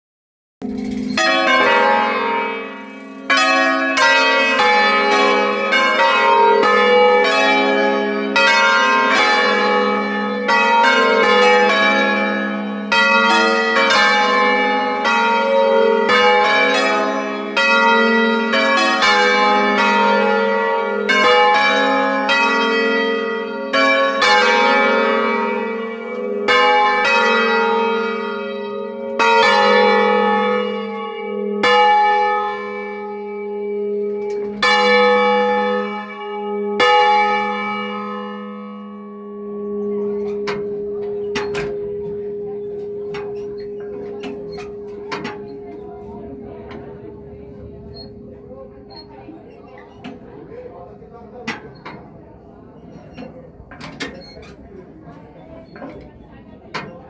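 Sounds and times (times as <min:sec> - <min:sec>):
church bells ringing: 0:00.6 - 0:57.0.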